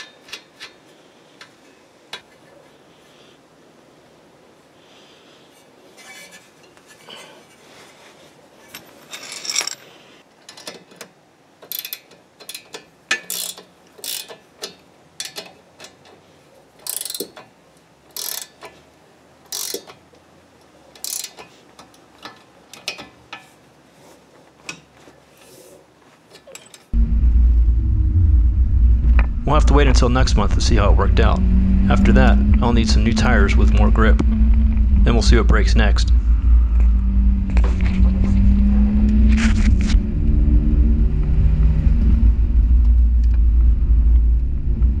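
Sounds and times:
ratchet wrench clicking: 0:11.7 - 0:16.0, 0:16.8 - 0:17.5, 0:18.1 - 0:18.7, 0:19.5 - 0:20.0, 0:21.0 - 0:21.4
car engine running deep: 0:27.0 - 0:45.0.

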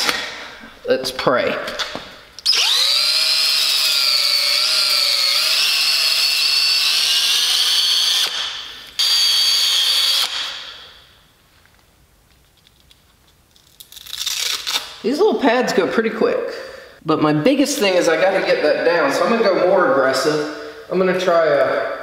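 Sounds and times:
cordless drill whining: 0:02.4 - 0:11.0.

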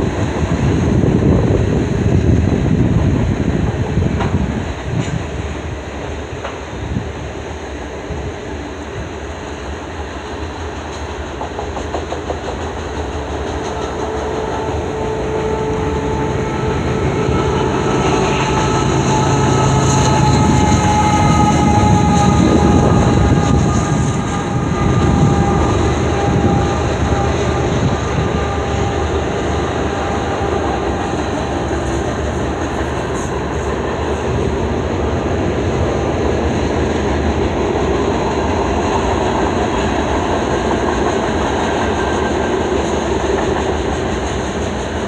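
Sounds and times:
locomotive engine hum and whine: 0:00.0 - 0:45.0
train wheels clicking over rail joints: 0:09.2 - 0:45.0.

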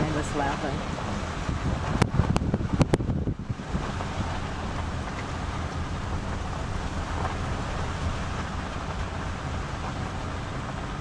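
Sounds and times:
car engine: 0:00.0 - 0:11.0
wind on microphone: 0:00.0 - 0:11.0.

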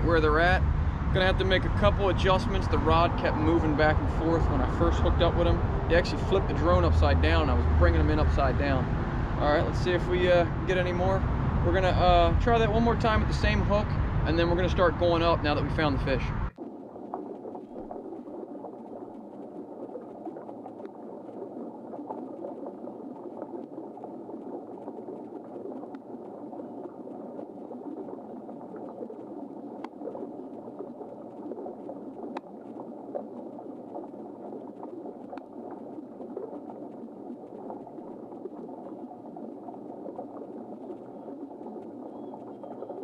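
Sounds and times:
muffled underwater bubbling rush: 0:00.0 - 0:43.0
faint clicks: 0:19.1 - 0:22.4, 0:23.2 - 0:43.0.

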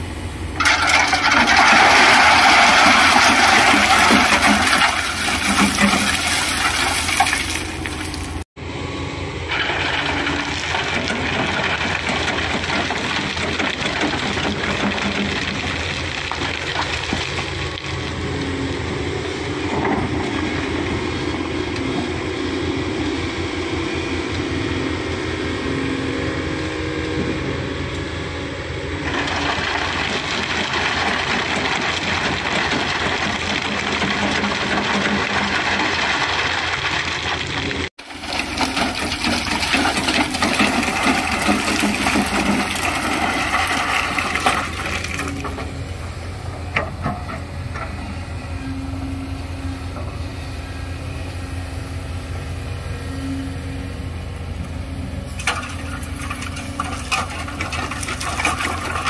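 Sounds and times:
excavator diesel engine running: 0:00.0 - 0:59.0
stones rattling onto metal: 0:55.4 - 0:59.0.

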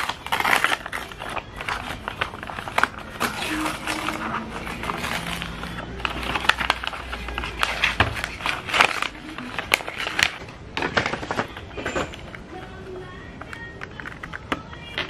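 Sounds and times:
wrapping paper tearing and crumpling: 0:00.0 - 0:11.7.

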